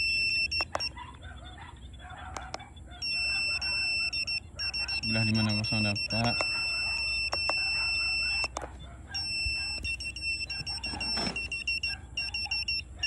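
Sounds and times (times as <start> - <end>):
meter buzzer high tone: 0.0 - 0.8, 3.0 - 8.6, 9.2 - 12.9
rapid beeping: 0.0 - 1.0, 3.0 - 13.0
button clicks: 0.5 - 0.9, 4.6 - 8.7.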